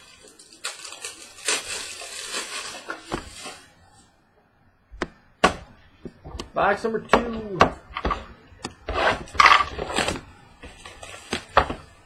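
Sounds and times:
cards and packaging rustling: 0:00.0 - 0:03.8, 0:09.3 - 0:12.0.

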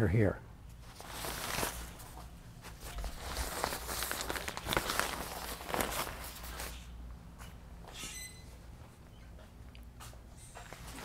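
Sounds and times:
cover rustling and crinkling: 0:00.8 - 0:06.8.

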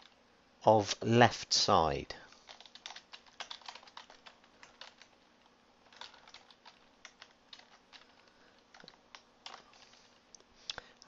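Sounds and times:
typing on computer keyboard: 0:02.5 - 0:05.2, 0:05.8 - 0:09.7.

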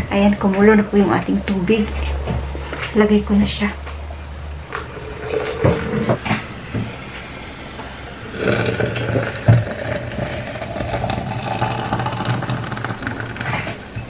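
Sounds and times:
water pouring into a metal pot: 0:04.9 - 0:06.0, 0:08.3 - 0:14.0.

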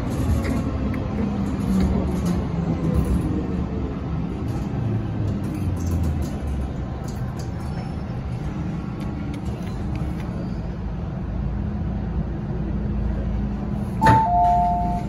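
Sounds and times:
train car hum and rumble: 0:00.0 - 0:15.0
two-tone electronic chime: 0:14.0 - 0:15.0.

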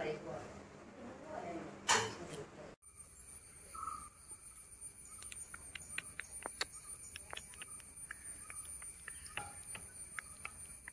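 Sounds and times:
insect chirps and ticks: 0:02.8 - 0:10.9.

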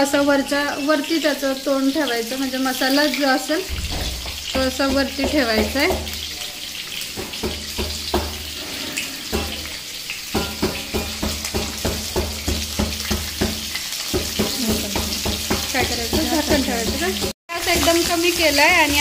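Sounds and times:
food frying in hot oil: 0:00.0 - 0:19.0.

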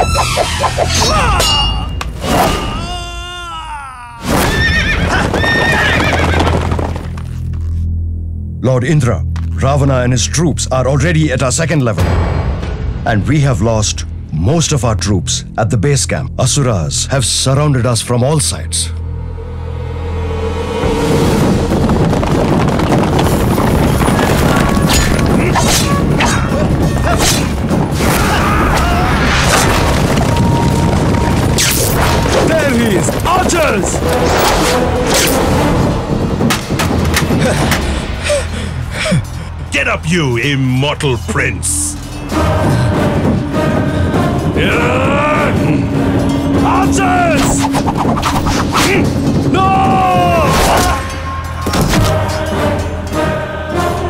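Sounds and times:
music: 0:00.0 - 0:03.6, 0:04.2 - 0:54.0
horse whinnying: 0:04.4 - 0:06.9
battle crashes and booms: 0:21.2 - 0:26.2, 0:27.4 - 0:38.0.

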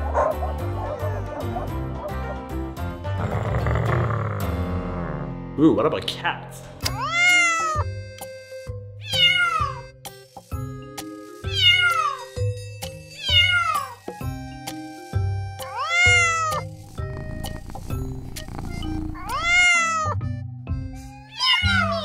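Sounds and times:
background music: 0:00.0 - 0:22.0
cat meowing: 0:06.9 - 0:07.8, 0:09.0 - 0:09.8, 0:15.6 - 0:20.2, 0:21.2 - 0:22.0.

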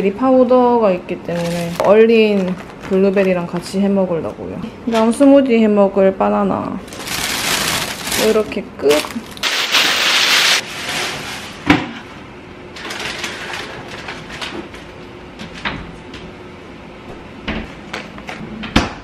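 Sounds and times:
plastic bag rustling: 0:01.3 - 0:03.6, 0:06.8 - 0:11.6, 0:12.8 - 0:14.7.

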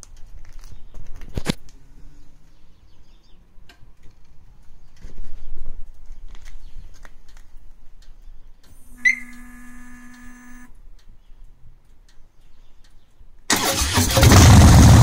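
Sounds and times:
fuel pump whine: 0:08.7 - 0:10.7
motorcycle engine firing up: 0:13.5 - 0:15.0
starter motor cranking: 0:13.5 - 0:15.0.

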